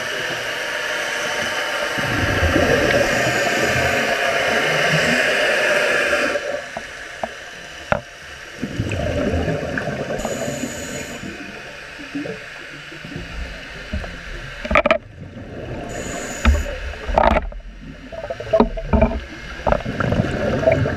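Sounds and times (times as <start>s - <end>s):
bubbles gurgling underwater: 2.0s - 5.2s, 8.6s - 20.9s
hiss of inhaled air: 10.2s - 11.5s, 15.9s - 16.8s.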